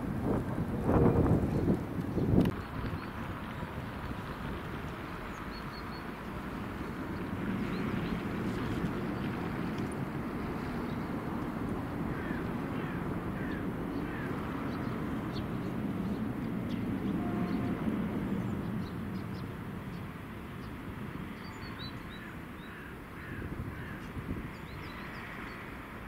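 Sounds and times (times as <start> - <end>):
distant diesel locomotive rumble: 0.0 - 26.0
birds chirping: 5.2 - 25.7.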